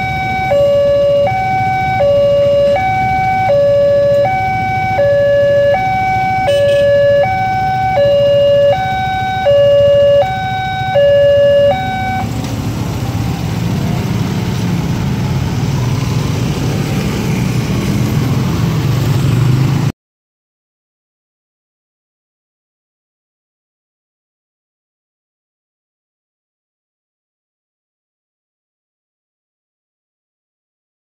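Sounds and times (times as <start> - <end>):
level crossing two-tone alarm: 0.0 - 12.3
motorcycle and car engines rumbling: 0.0 - 19.9.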